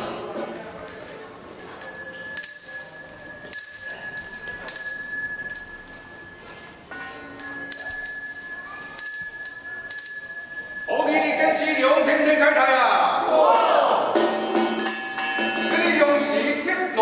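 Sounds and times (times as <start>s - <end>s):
small metal bell ringing: 0.7s - 11.4s, 14.2s - 16.0s
steady low ringing tone: 0.8s - 11.3s, 14.2s - 15.9s.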